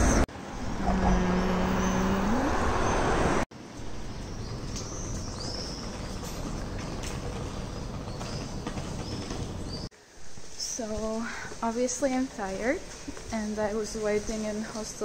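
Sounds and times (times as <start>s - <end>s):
passing motor traffic: 0.0s - 3.5s
city street ambience: 0.0s - 15.0s.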